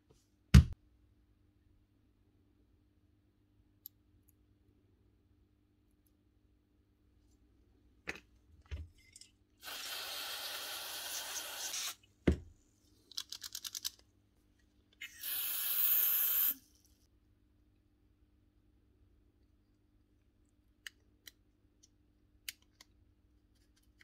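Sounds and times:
aerosol spray hissing: 9.6s - 12.0s, 15.0s - 16.6s.

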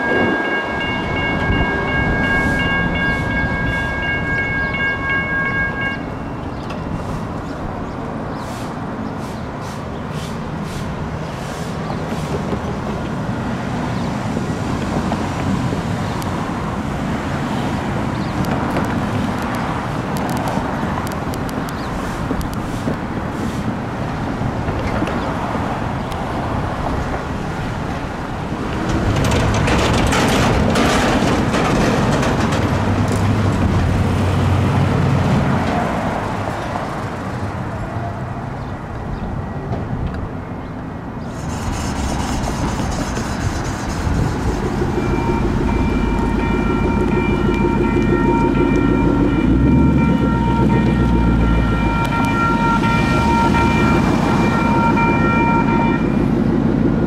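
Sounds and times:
road traffic: 0.0s - 57.0s
vehicle passing close by: 41.3s - 57.0s.

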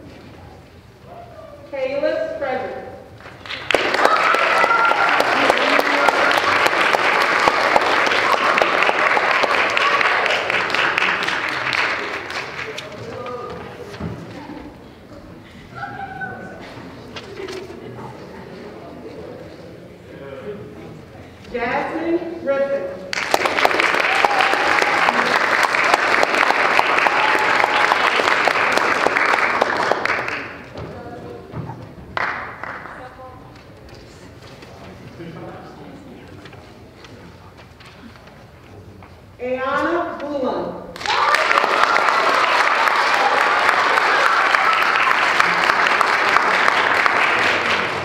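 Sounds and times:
audience applauding: 3.2s - 13.4s, 23.1s - 30.7s, 32.1s - 33.1s, 41.0s - 48.0s
voices among clapping: 3.2s - 13.9s, 23.1s - 30.9s, 32.1s - 34.0s, 41.0s - 48.0s.

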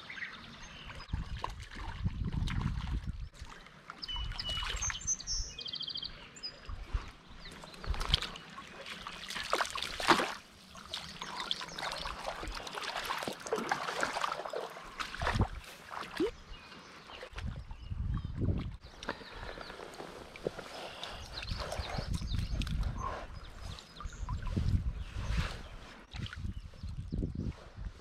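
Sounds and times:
bird chirping: 4.0s - 6.7s
fish splashing in water: 7.9s - 16.4s.

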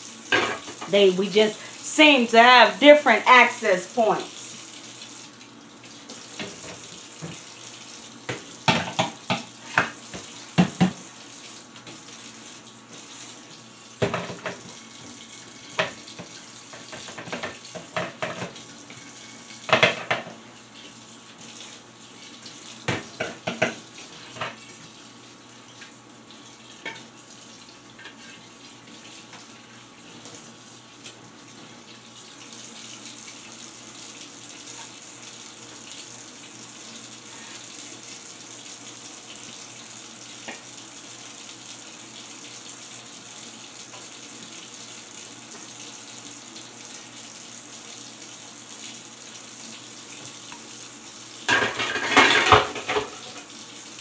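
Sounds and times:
tap running into steel sink: 8.3s - 11.0s, 22.8s - 23.8s
dishes clinking: 51.5s - 53.4s.

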